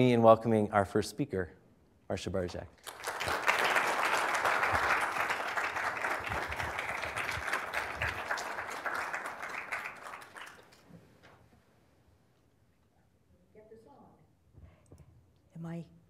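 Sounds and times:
audience applauding: 2.8 - 10.9.

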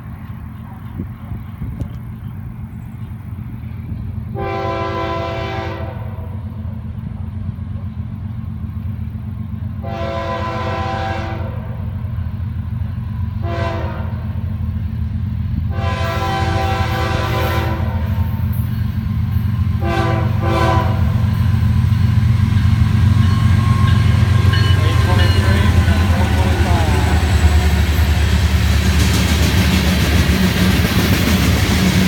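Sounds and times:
train rumble: 0.0 - 32.0
locomotive air horn blasts: 4.3 - 6.4, 9.8 - 11.8, 13.4 - 14.4, 15.7 - 18.5, 19.7 - 21.4.

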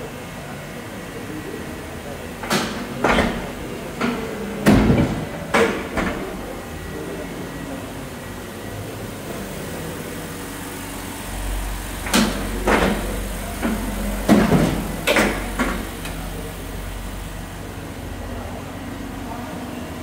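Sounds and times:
paper guillotine cutter humming: 6.2 - 20.0.

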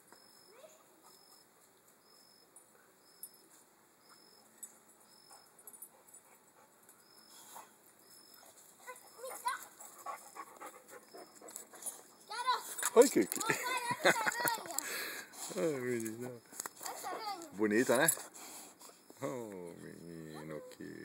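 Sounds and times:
faint outdoor background: 0.0 - 21.0
dog panting rapidly: 8.8 - 12.1.

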